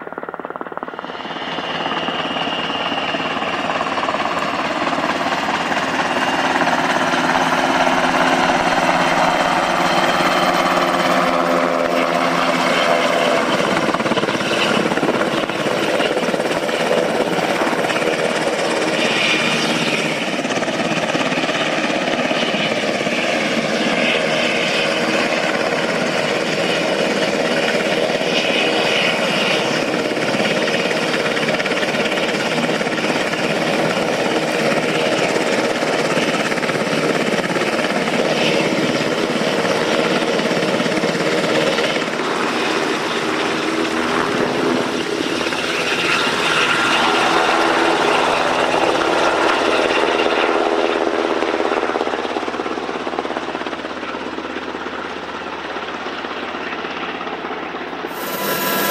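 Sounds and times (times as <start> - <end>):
helicopter rotor din: 0.0 - 58.9.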